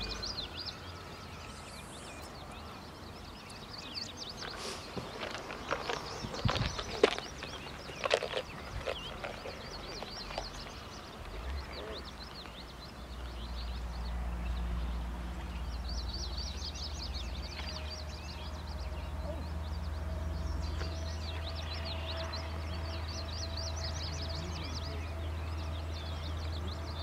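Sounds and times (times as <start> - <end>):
low rumble: 0.0 - 2.6
songbirds chirping: 0.0 - 27.0.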